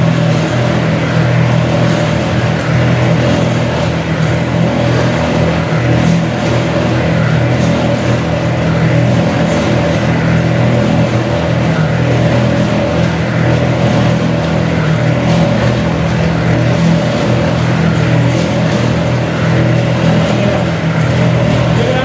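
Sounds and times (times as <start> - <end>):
oil press mechanical drone: 0.0 - 22.0.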